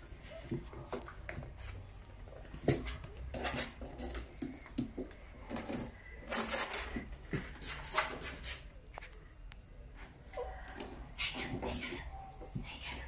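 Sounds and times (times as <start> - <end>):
puppies pattering on hard floor: 0.1 - 9.3.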